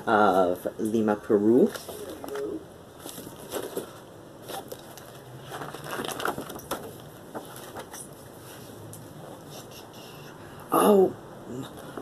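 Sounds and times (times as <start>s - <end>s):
stiff paper pages rustling: 1.7s - 8.8s.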